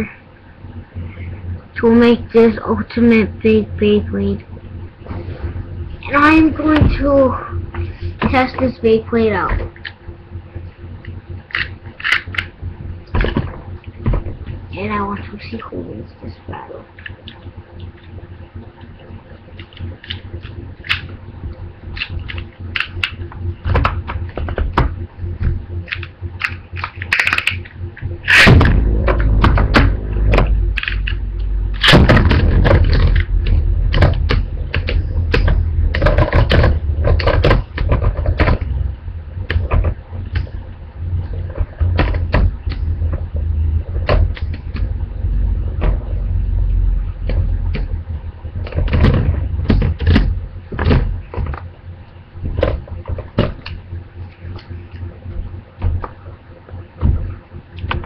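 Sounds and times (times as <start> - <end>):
spinning tops whirring: 16.9 - 58.0.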